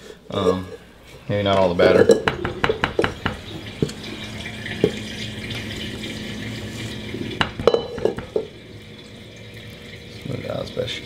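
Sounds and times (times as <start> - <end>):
steady background hiss: 0.0 - 3.1.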